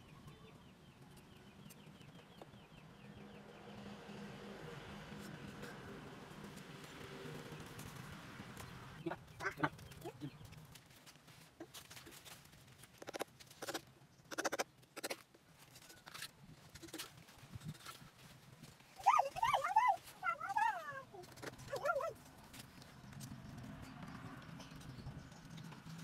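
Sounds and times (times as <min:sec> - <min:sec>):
animal high-pitched wavering cries: 0:19.0 - 0:22.1.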